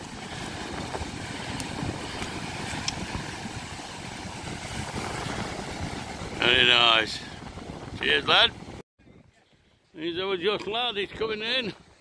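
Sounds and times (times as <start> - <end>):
surf washing onto beach: 0.0 - 8.8
wind rumbling on microphone: 0.0 - 12.0.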